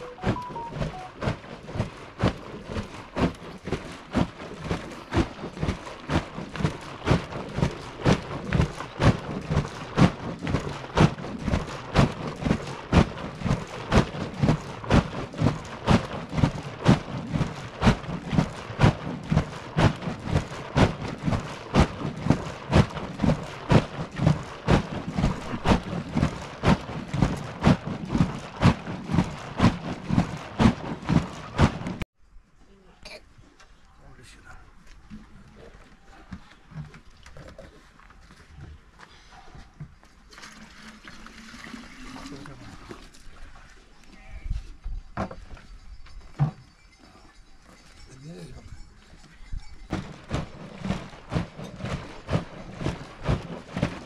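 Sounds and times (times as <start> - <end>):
milk sloshing in churn bag: 0.0 - 32.0, 40.1 - 43.9, 49.9 - 54.0.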